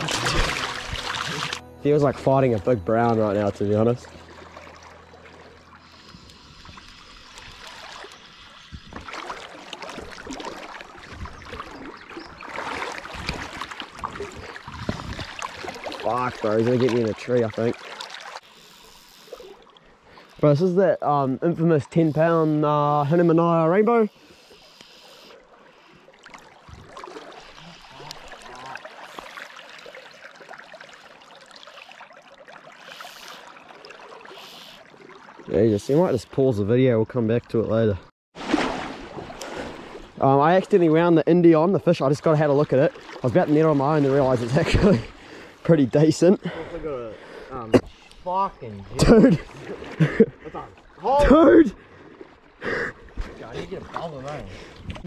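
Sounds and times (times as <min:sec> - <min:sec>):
knocks splashes and rustles: 0:00.0 - 0:18.5, 0:25.5 - 0:35.8, 0:38.3 - 0:46.0, 0:47.7 - 0:55.0
river water flowing and lapping: 0:00.0 - 0:55.0
faint ticks: 0:24.7 - 0:25.0.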